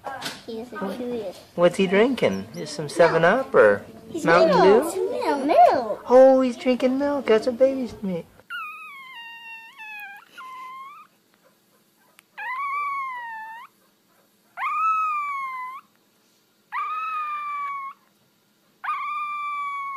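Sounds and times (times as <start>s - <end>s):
puppy howling: 2.0s - 3.2s, 8.5s - 11.2s, 12.0s - 13.8s, 14.6s - 16.0s, 16.7s - 18.1s, 18.8s - 19.9s.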